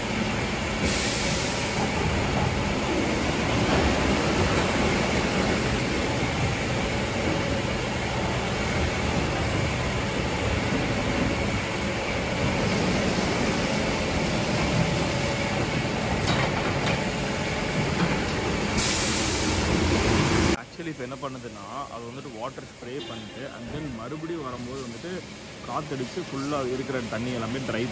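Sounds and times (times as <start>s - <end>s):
car wash brushes and spray: 0.0s - 16.2s.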